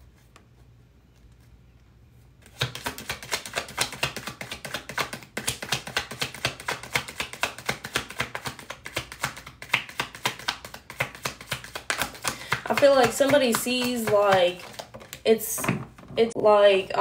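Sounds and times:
cards being shuffled: 2.4s - 15.3s.

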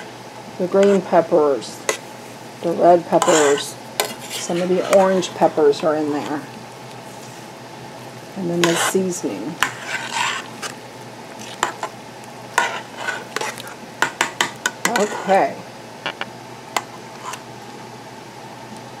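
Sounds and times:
spoon stirring vegetables in pot: 0.8s - 1.2s, 3.0s - 6.4s, 8.5s - 15.5s
spoon clinking and scraping pot: 3.1s - 5.4s, 12.6s - 15.4s.

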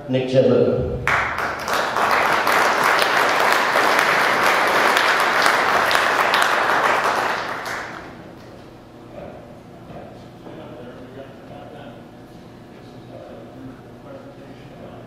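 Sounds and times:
audience applauding: 1.0s - 8.3s.

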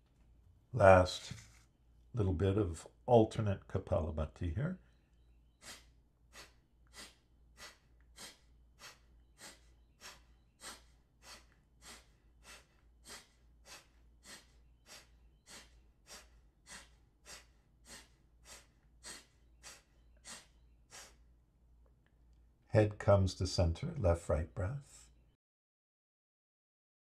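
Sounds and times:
forceful nasal exhalations: 5.6s - 21.3s.

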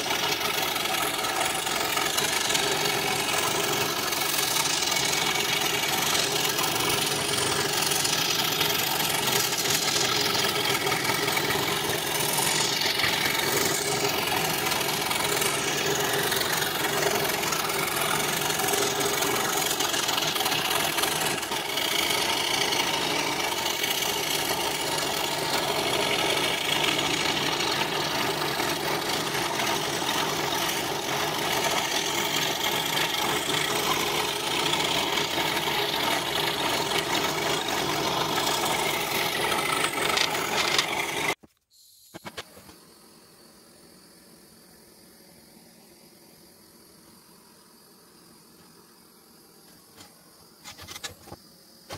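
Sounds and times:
scroll saw cutting plywood: 0.0s - 41.5s.

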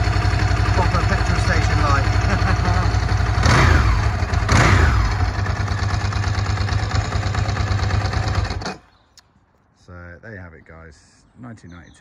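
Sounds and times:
motorcycle engine idling and revving: 0.0s - 9.1s.

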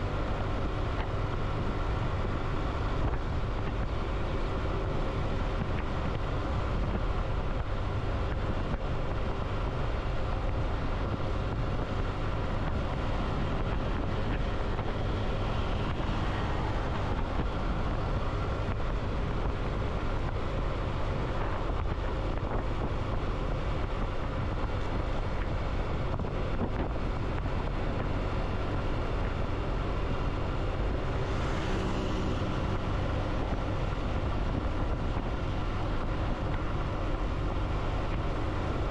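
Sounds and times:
vehicle engine and road noise: 0.0s - 38.9s
wind rushing over microphone: 0.0s - 38.9s.

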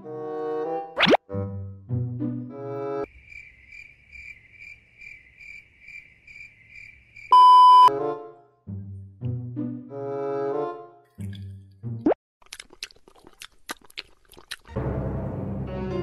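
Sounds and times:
cricket chirping sound effect: 3.0s - 7.4s
loud beep: 7.3s - 7.9s.

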